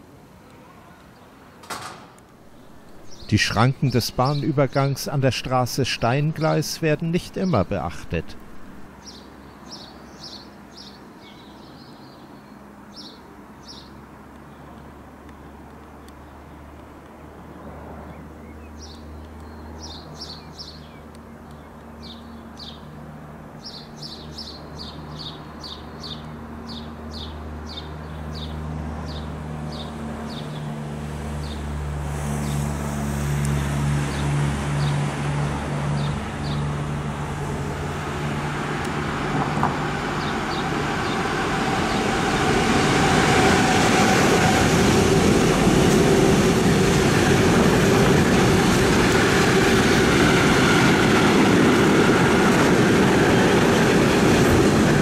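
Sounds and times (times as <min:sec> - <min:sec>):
electric locomotive approaching: 0:02.2 - 0:09.2, 0:28.6 - 0:55.0
bird chirping: 0:02.4 - 0:14.0
train wheels rumbling on rails: 0:32.1 - 0:55.0.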